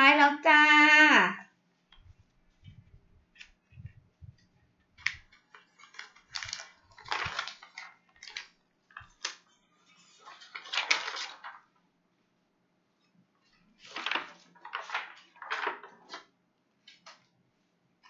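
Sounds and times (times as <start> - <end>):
crinkling: 1.9 - 11.8, 13.4 - 16.3.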